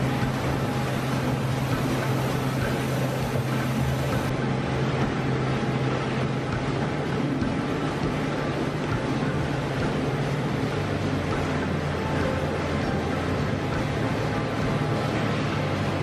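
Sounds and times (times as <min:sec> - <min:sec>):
low hum: 0:00.0 - 0:16.0
machinery and conveyor belts droning: 0:00.0 - 0:16.0.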